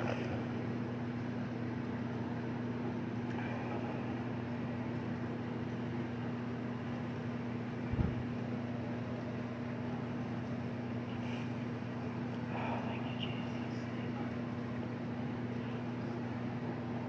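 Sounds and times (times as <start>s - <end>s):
steady low hum: 0.0s - 17.0s
soft low thump: 7.9s - 8.2s.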